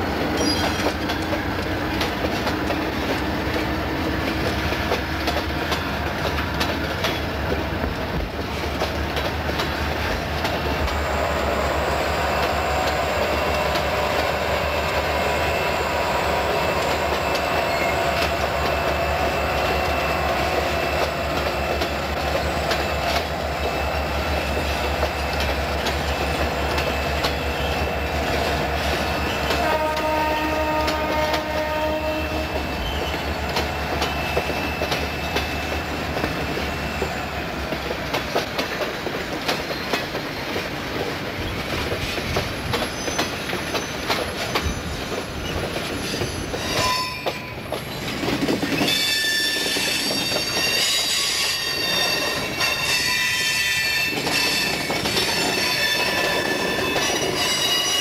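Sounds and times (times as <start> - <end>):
freight train wheels rumbling: 0.0 - 58.0
wheels squealing: 0.4 - 1.1, 42.7 - 58.0
train horn chord: 29.5 - 32.6.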